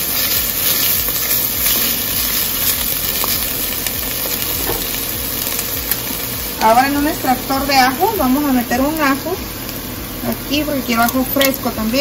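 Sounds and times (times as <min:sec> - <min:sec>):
spatula stirring: 0:00.0 - 0:06.2
onion sizzling in a pot: 0:00.0 - 0:12.0.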